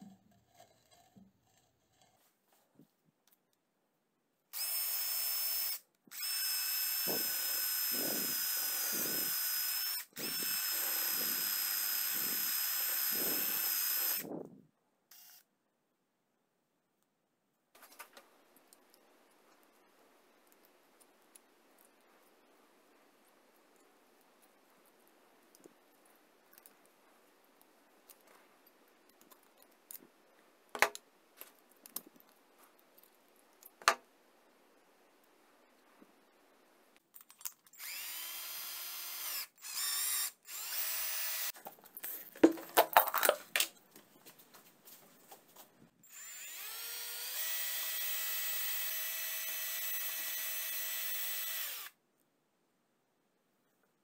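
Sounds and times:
cordless drill motor whine: 4.6s - 14.3s, 15.1s - 15.4s, 37.8s - 41.5s, 46.1s - 52.0s.

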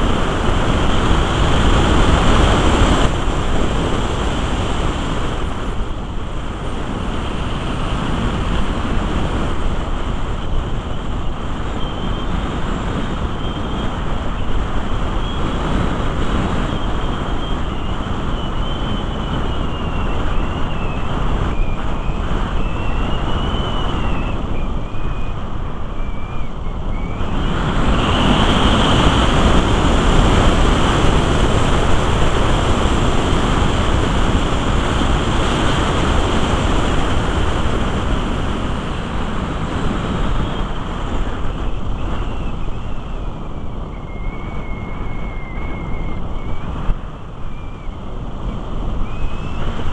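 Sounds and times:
thin wavering high whistle: 10.8s - 12.6s, 16.5s - 30.2s, 40.2s - 49.9s.

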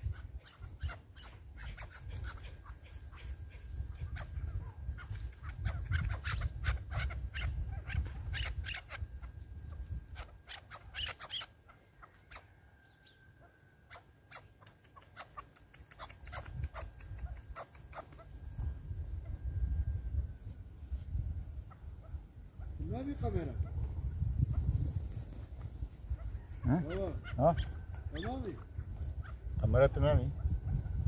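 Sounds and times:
low wind rumble: 0.0s - 11.7s, 16.1s - 31.0s
partridges calling: 0.0s - 18.4s, 26.0s - 31.0s.

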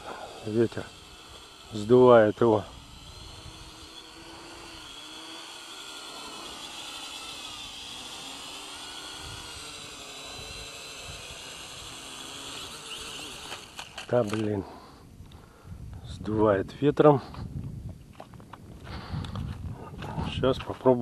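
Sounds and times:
drone propellers whirring: 0.0s - 15.5s.

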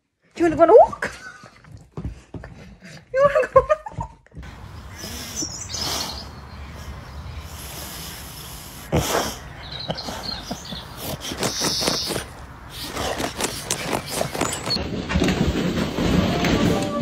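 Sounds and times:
dog digging in soil: 7.6s - 14.9s.

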